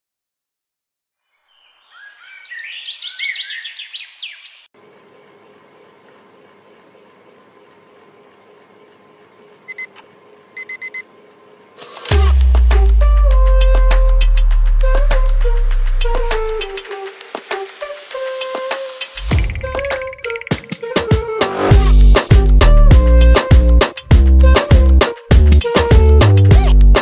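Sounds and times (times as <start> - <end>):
birds chirping: 1.3 - 4.7
upbeat reggaeton music: 12.1 - 27.0.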